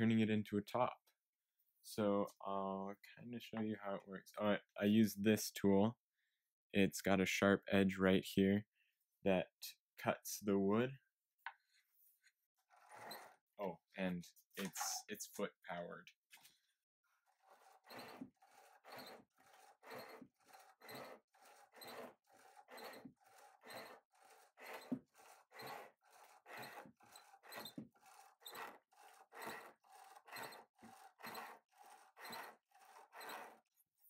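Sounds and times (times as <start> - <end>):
lathe tool cutting wood: 17.2 - 33.7.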